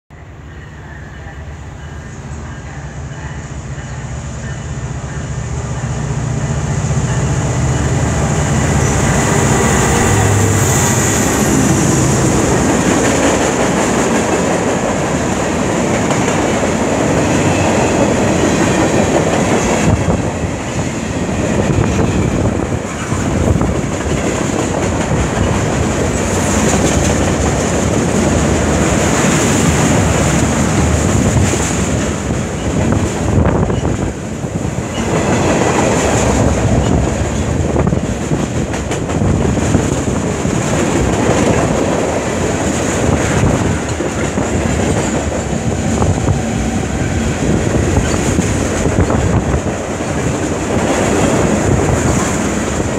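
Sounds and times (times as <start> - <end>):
train wheels rumbling on rails: 1.2 - 52.9
clickety-clack over rail joints: 12.2 - 52.9.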